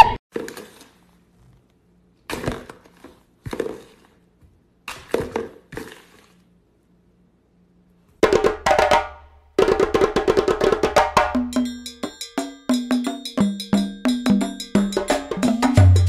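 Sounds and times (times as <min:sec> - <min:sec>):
fast struck percussion music: 0:08.2 - 0:16.0.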